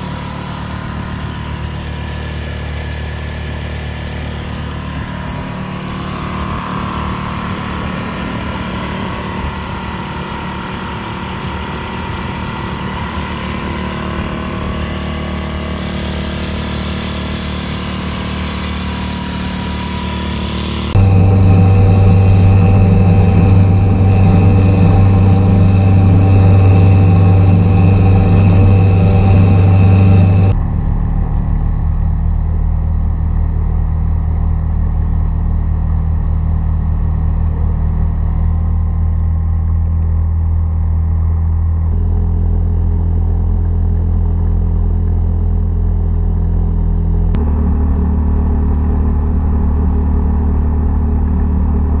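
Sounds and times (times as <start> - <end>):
outboard engine running: 0.0 - 52.0
quieter outboard engine running: 0.0 - 52.0.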